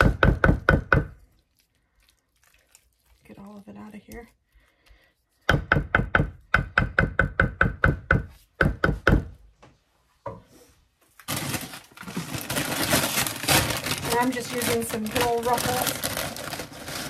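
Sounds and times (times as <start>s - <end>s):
chip bag crinkling: 11.2s - 17.0s.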